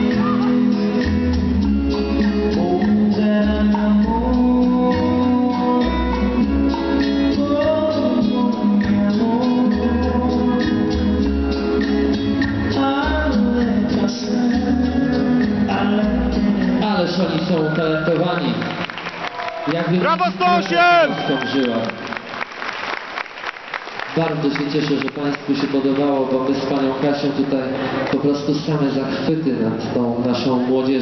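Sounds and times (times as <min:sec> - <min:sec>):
latin dance music with singing: 0:00.0 - 0:18.0.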